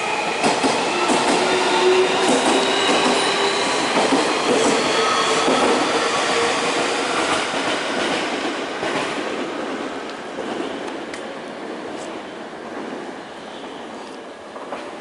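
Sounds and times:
electric train rolling: 0:00.0 - 0:09.5
steel wheels squealing: 0:00.3 - 0:06.5
rail joint clicks: 0:10.0 - 0:11.3.

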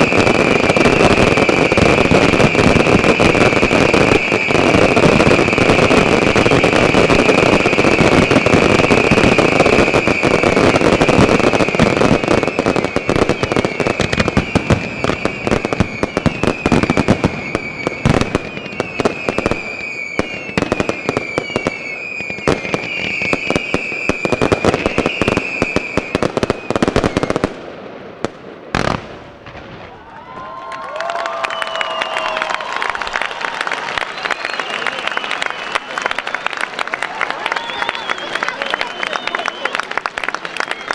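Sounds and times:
firework whistles: 0:00.0 - 0:27.6, 0:30.9 - 0:40.9
firework bursts and crackle: 0:00.0 - 0:40.9
firework bang: 0:27.0 - 0:30.5.

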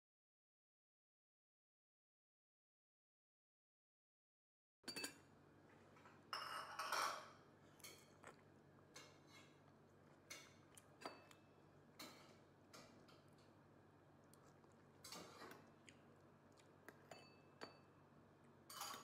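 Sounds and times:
metal spoon clinking on porcelain bowl: 0:04.9 - 0:05.2, 0:06.3 - 0:07.3, 0:17.1 - 0:17.9, 0:18.7 - 0:19.0.

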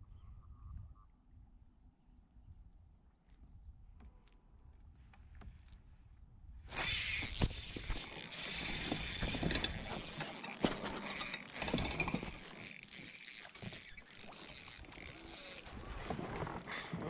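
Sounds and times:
fishing reel whirring: 0:06.7 - 0:17.0
reel clicks: 0:06.7 - 0:17.0.

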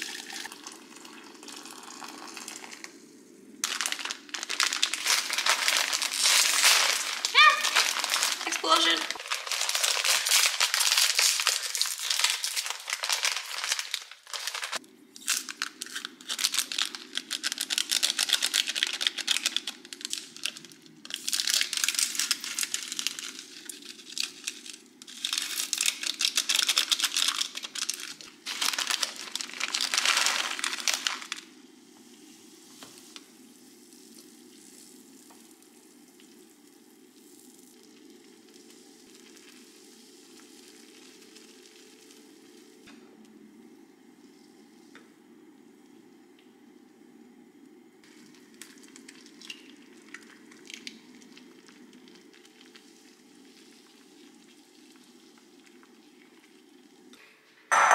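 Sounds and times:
plastic wrapper crinkling and tearing: 0:01.5 - 0:31.6, 0:48.1 - 0:53.0.

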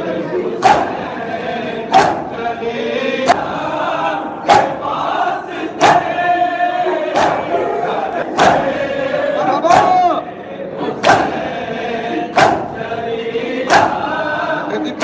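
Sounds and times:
men chanting a lament: 0:00.0 - 0:15.0
men slapping chests in unison: 0:00.5 - 0:01.2, 0:01.8 - 0:02.5, 0:03.1 - 0:07.6, 0:08.2 - 0:10.2, 0:10.9 - 0:11.6, 0:12.2 - 0:14.4.

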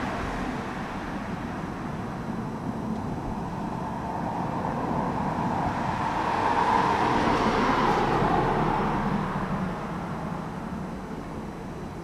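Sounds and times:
vehicle passing: 0:02.7 - 0:11.7.

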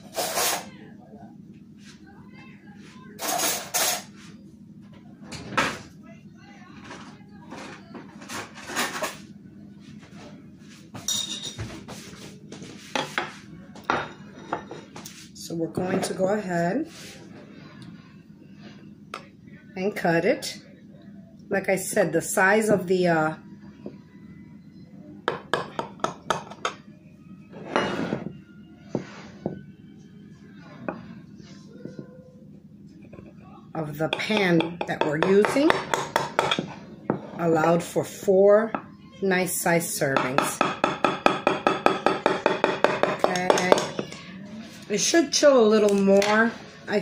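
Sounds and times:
dishes and utensils clattering: 0:11.0 - 0:12.0, 0:12.9 - 0:15.1, 0:25.3 - 0:26.8, 0:27.6 - 0:28.3, 0:34.1 - 0:37.4, 0:40.2 - 0:44.3
crockery clinking: 0:11.1 - 0:11.7.

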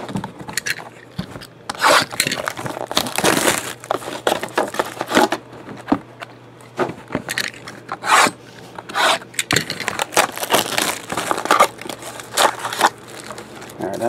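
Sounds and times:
plastic wrapper crinkling: 0:02.3 - 0:05.3, 0:09.8 - 0:14.0.

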